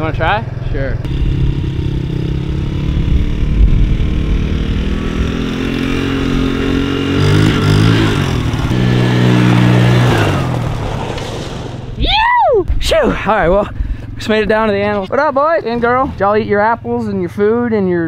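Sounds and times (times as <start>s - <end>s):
small engine running and revving: 0.1s - 11.9s.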